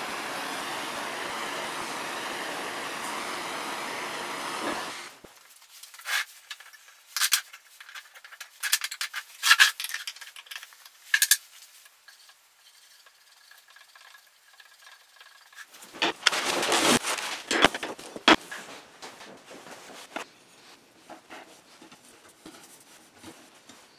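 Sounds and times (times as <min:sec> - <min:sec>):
torch flame hissing: 0:00.0 - 0:05.3.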